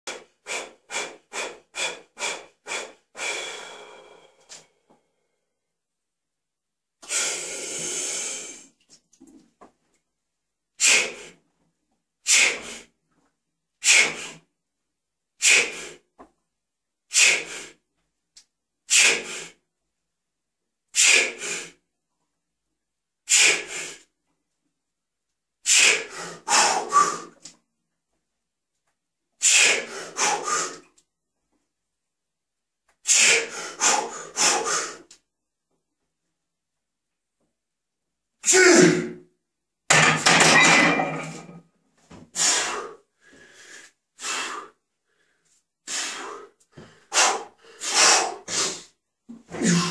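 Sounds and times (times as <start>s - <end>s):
sharp forceful breaths: 0.1s - 4.9s, 10.8s - 11.4s, 12.2s - 12.9s, 13.8s - 14.5s, 15.4s - 16.1s, 17.1s - 17.8s, 18.9s - 19.6s, 20.9s - 21.8s, 23.3s - 24.1s, 25.6s - 27.4s, 29.4s - 30.9s, 33.0s - 35.1s, 42.3s - 49.0s.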